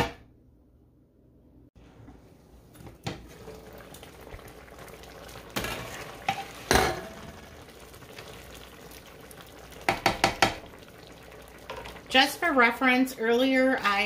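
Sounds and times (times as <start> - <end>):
soup simmering: 1.8 - 13.2
spoon stirring and scraping pot: 5.5 - 7.0.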